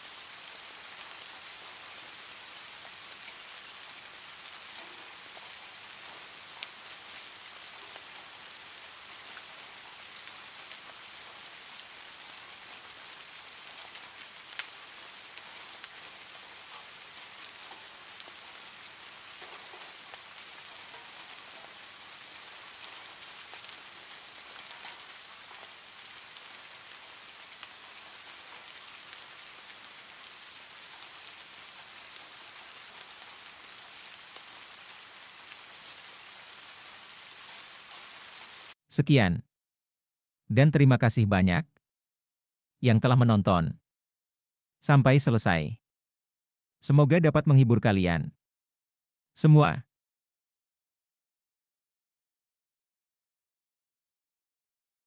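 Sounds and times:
rain on a tin roof: 0:00.0 - 0:38.8.

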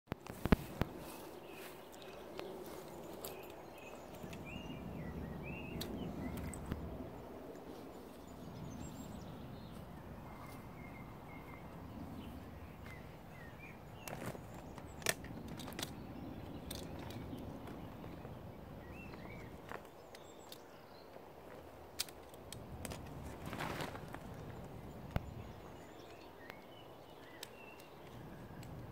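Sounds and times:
bird chirps: 0:01.0 - 0:06.9, 0:25.1 - 0:28.7.

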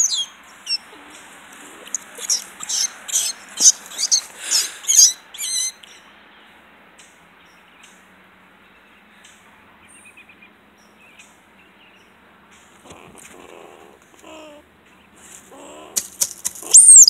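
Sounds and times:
squirrel distress squeals: 0:00.0 - 0:05.8, 0:12.8 - 0:14.6, 0:15.2 - 0:17.0.

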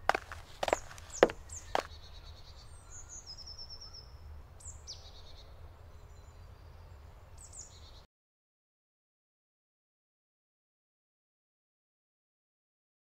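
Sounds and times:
bird trill: 0:00.0 - 0:08.0
songbirds chirping: 0:00.0 - 0:08.1.

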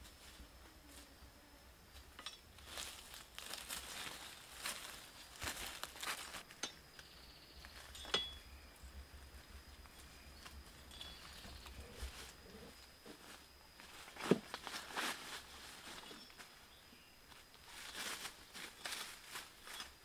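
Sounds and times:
brushing past undergrowth: 0:01.9 - 0:06.6, 0:07.5 - 0:20.0
footsteps in dry leaves: 0:02.6 - 0:06.5, 0:11.9 - 0:20.0.

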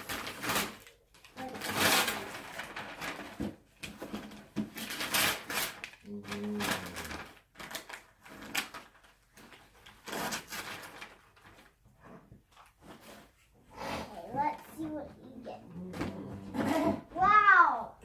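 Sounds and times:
wrapping paper rustling: 0:00.0 - 0:13.4.

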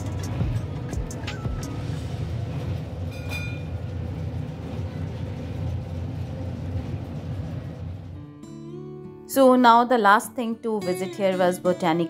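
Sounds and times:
tram wheels rumbling on track: 0:00.0 - 0:08.4.

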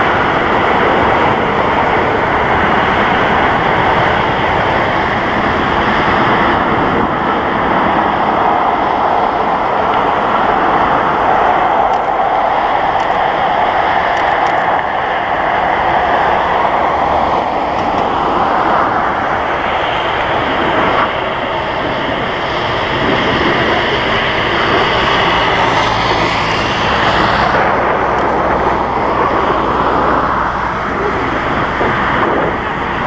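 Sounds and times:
jet engines whining: 0:00.0 - 0:33.0.

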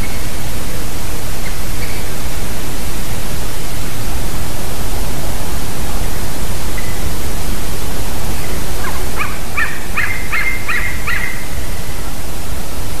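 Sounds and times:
loud steady rushing noise: 0:00.0 - 0:13.0
eaglet whistled calls: 0:08.4 - 0:11.6.

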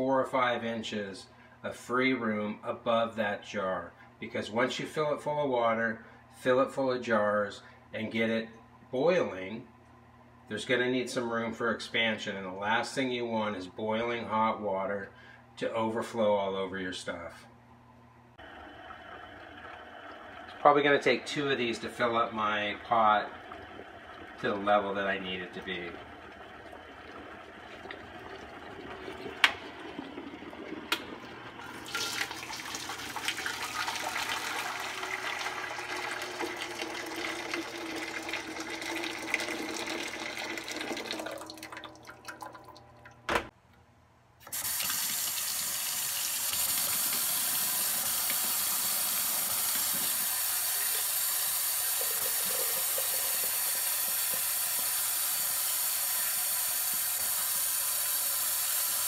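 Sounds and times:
water poured into metal pot: 0:18.4 - 0:43.2, 0:44.6 - 0:59.0
faucet running into sink: 0:18.5 - 0:43.3, 0:44.5 - 0:59.0
glass jar being washed: 0:19.2 - 0:43.2, 0:44.8 - 0:59.0.

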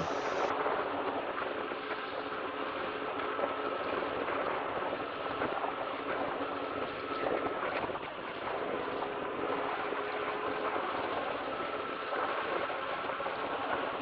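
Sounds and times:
faint hum: 0:00.0 - 0:00.5.

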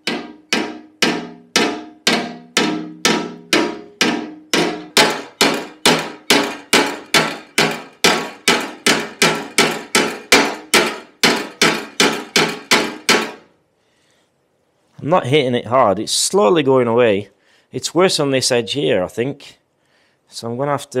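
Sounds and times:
hammer tapping steel panel: 0:00.0 - 0:13.5.

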